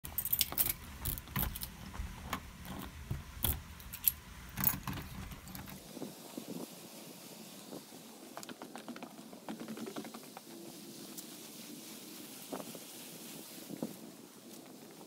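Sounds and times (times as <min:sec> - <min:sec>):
keys jangling on key ring: 0:00.1 - 0:01.8, 0:02.7 - 0:05.8.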